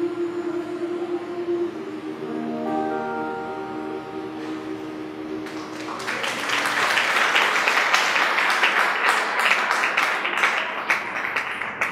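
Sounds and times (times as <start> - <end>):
held music chord: 0.0 - 6.4
audience applause: 5.4 - 11.9.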